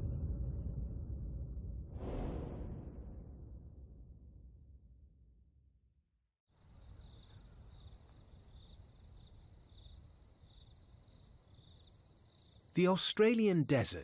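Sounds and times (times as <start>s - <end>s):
low rumble: 0.0s - 6.0s.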